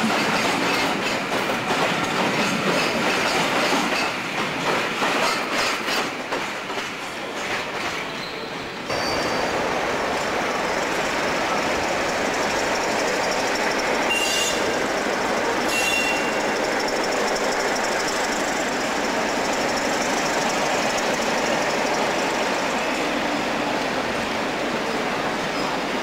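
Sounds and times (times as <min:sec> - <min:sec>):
train rumbling on track: 0:00.0 - 0:26.0
high squeals: 0:08.9 - 0:09.7, 0:12.0 - 0:23.2
diesel locomotive running: 0:08.9 - 0:26.0.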